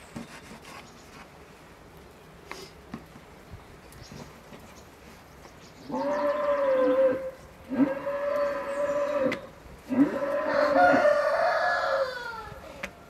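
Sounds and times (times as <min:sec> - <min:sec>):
rooster crowing: 0:10.1 - 0:12.7.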